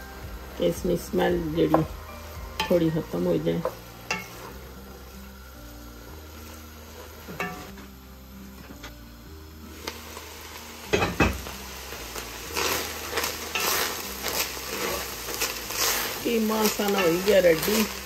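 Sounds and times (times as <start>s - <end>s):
meat sizzling in a pot: 0.0s - 18.0s
wooden spoon scraping a pot: 12.5s - 17.9s.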